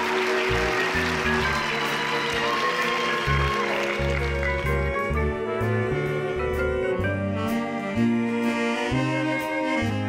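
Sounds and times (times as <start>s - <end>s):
audience applause: 0.0s - 5.2s
pit band playing chords: 0.0s - 10.0s.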